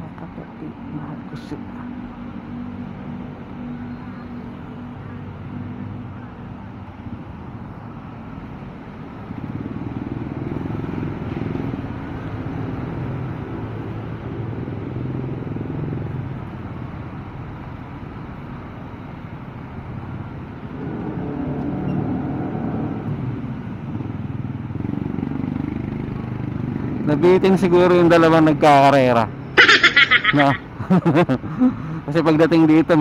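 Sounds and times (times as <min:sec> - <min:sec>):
road noise: 0:00.0 - 0:33.0
motorcycle engine: 0:20.0 - 0:27.4.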